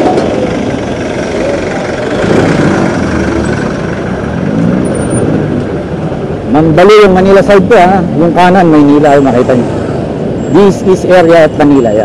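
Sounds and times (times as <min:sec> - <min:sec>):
diesel engine running: 0:00.0 - 0:08.4
busy street din: 0:00.0 - 0:12.0.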